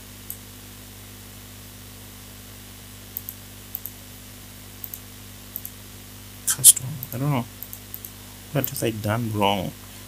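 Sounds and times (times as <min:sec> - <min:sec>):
faint electrical hum: 0:00.0 - 0:10.0
steady low hiss: 0:00.0 - 0:10.0
computer mouse clicks: 0:03.1 - 0:04.0, 0:04.8 - 0:05.8, 0:06.9 - 0:08.8.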